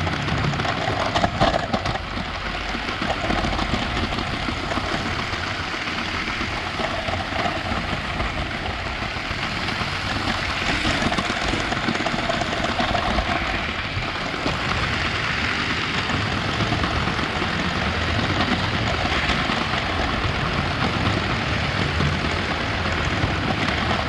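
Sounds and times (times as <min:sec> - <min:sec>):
wheels rattling on rails: 0:00.0 - 0:24.0.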